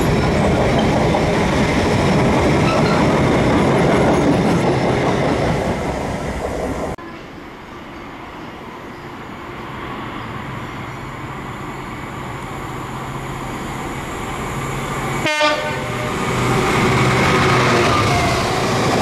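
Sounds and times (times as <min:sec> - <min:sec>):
diesel locomotive engine drone: 0:00.0 - 0:19.0
train horn: 0:15.2 - 0:16.3.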